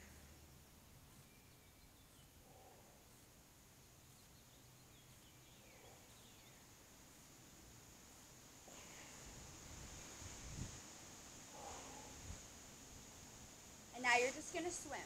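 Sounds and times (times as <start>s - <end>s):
faint outdoor ambience: 0.0s - 15.0s.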